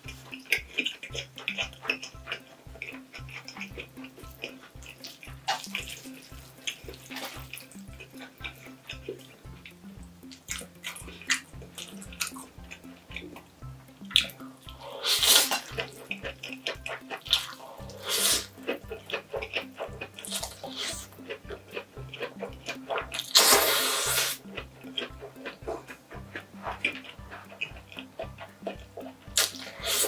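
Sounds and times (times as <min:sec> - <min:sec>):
wet mouth clicks: 0:00.0 - 0:13.4, 0:14.0 - 0:30.0
background music with steady beat: 0:00.0 - 0:30.0
person slurping noodles: 0:14.7 - 0:15.7, 0:17.3 - 0:18.5, 0:20.2 - 0:21.1, 0:22.9 - 0:24.6, 0:29.4 - 0:30.0.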